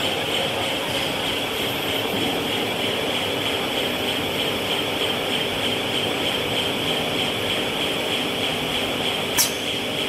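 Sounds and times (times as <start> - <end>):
film line machinery din: 0.0 - 10.0.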